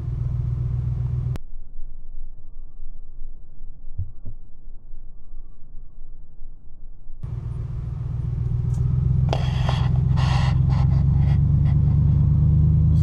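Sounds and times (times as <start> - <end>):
vehicle engine and road rumble: 0.0 - 13.0
short sharp hissy noises: 9.3 - 11.0.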